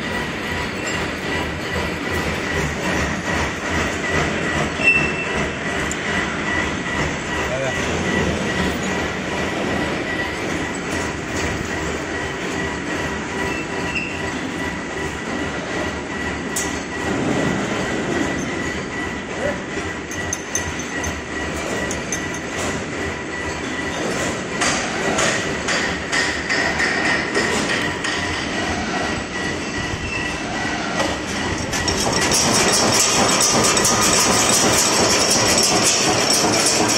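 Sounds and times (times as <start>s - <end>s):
high machine whine: 0.0s - 36.9s
nail making machine clattering: 31.0s - 36.9s.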